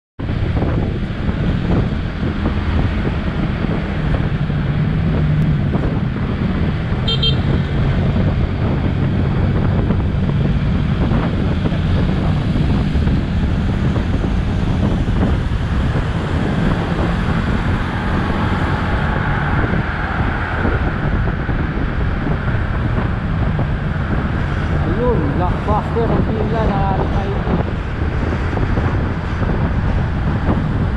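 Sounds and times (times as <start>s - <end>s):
traffic: 0.2s - 30.9s
wind rushing over microphone: 0.2s - 30.9s
short horn beep: 7.0s - 7.5s.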